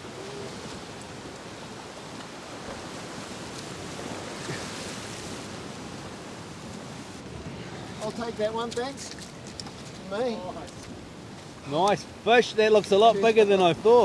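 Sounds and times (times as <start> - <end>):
surf washing against rocks: 0.0 - 14.0.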